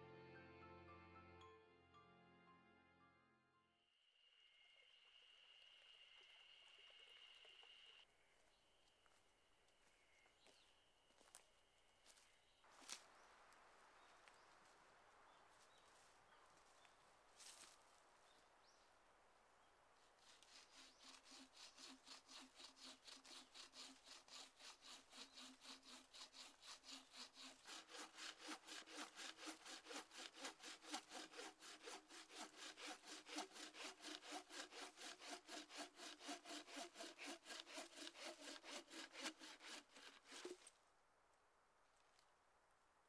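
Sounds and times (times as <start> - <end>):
saw cutting through a log: 20.1 - 40.7.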